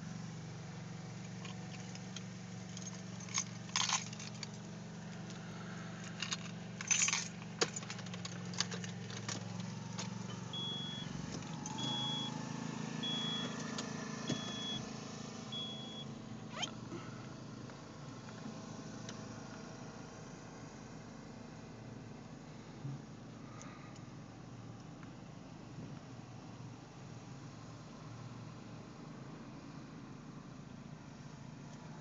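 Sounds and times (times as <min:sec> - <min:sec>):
car engine hum from cabin: 0:00.0 - 0:32.0
jangling rattles: 0:01.3 - 0:04.7, 0:06.0 - 0:10.2
dashboard warning chime: 0:10.2 - 0:12.4, 0:13.0 - 0:14.9, 0:15.5 - 0:16.1.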